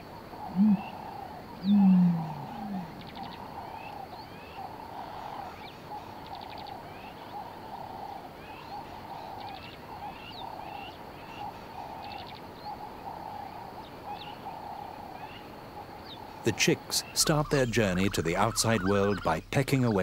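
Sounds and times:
bird rising chirps: 0.4 - 3.9.

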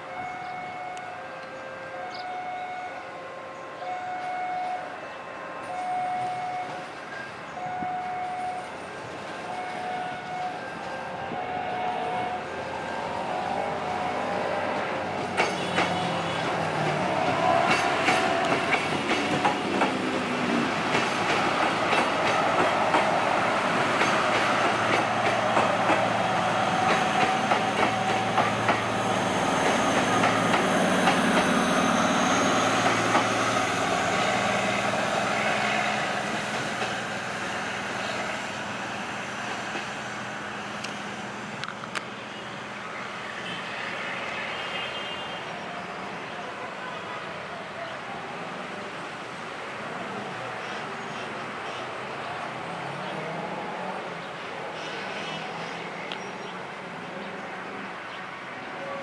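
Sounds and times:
train engine drone: 0.0 - 59.0.

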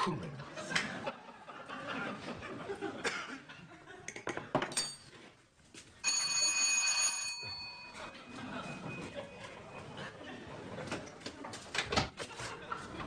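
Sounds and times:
utensils clinking on dishes: 4.2 - 5.2
electric doorbell ringing: 6.0 - 8.1.

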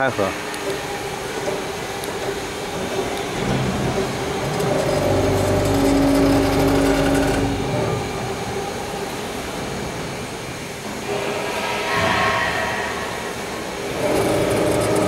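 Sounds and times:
hydraulic pump motor humming: 0.0 - 8.7, 13.8 - 15.0.

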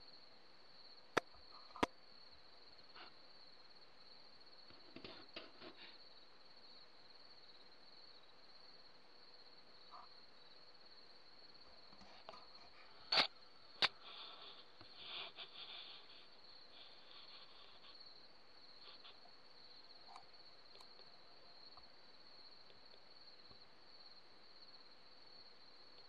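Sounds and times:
crickets chirping: 0.0 - 26.0
faint rustles: 11.8 - 21.1.

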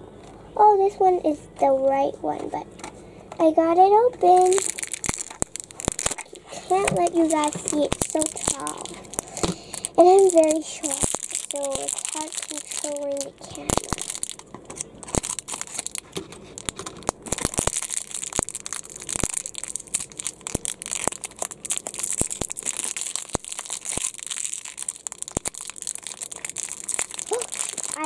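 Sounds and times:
plastic wrapper crinkling: 4.2 - 28.0.

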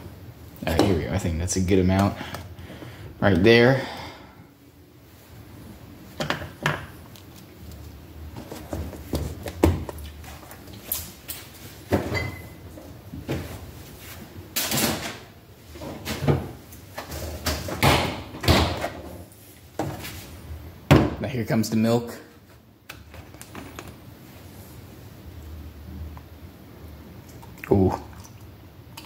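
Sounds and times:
refrigerator door opening and closing: 11.9 - 12.6, 14.6 - 19.2.

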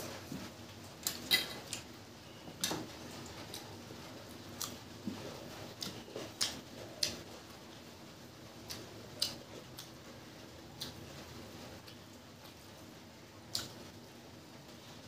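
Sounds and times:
person chewing food: 4.3 - 7.3, 8.6 - 10.0, 13.5 - 13.9.

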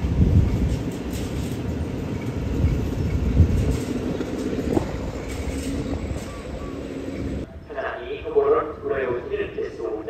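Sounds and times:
heavy knocks of wagons: 0.0 - 7.4
freight train rumbling: 0.0 - 10.0.

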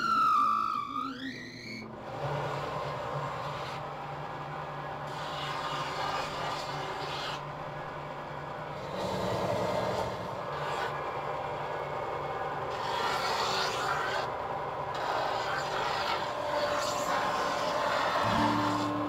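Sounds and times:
wood sanding on belt: 15.0 - 19.0.

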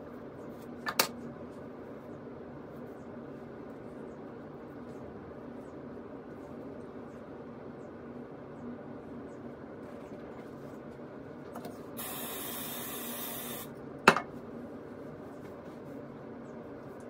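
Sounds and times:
steady low hum: 0.0 - 17.0
aerosol spray hissing: 12.0 - 13.7.

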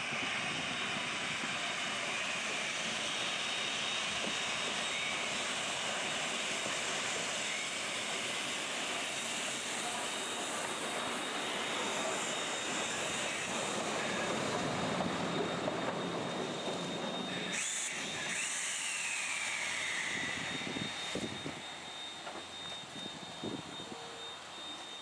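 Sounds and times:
steam hissing from locomotive: 16.6 - 25.0.

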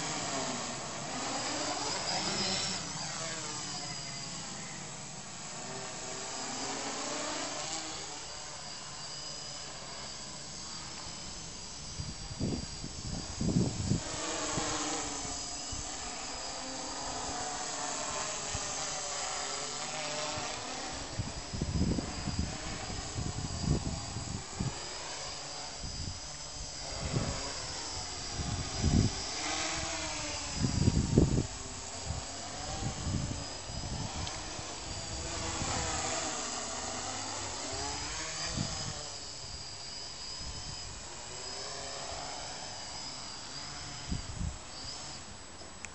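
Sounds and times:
quadcopter motors whining: 0.0 - 45.9.

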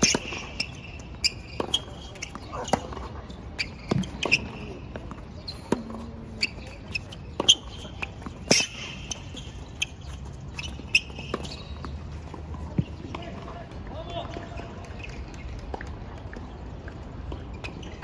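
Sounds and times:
tennis ball hits: 0.0 - 0.6, 3.8 - 9.9
court shoes squeaking: 0.0 - 13.6, 14.2 - 16.6, 17.2 - 18.0
ball bouncing on court: 0.0 - 14.6.

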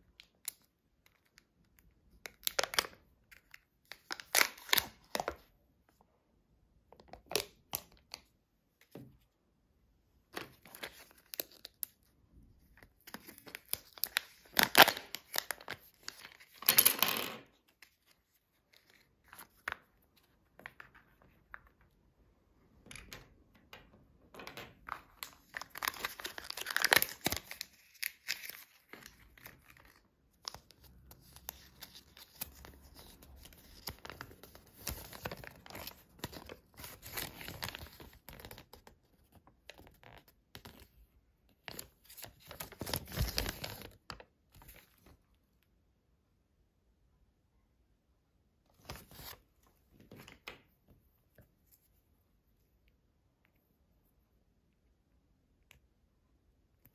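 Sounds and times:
paper leaflet crinkling: 24.9 - 38.9.

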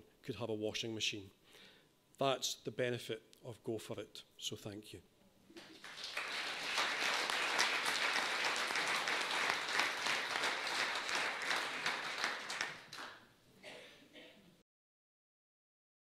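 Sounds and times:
audience applauding: 5.6 - 13.2.

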